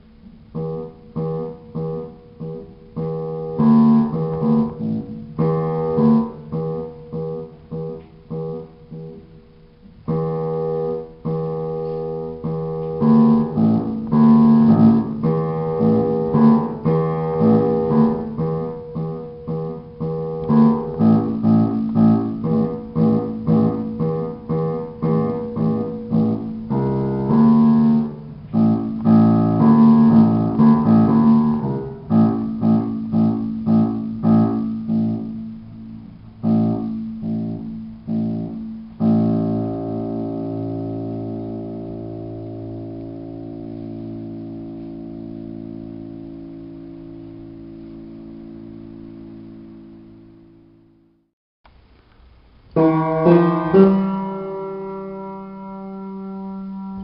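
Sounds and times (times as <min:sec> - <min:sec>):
solo piano: 0:00.0 - 0:51.2, 0:52.6 - 0:57.0.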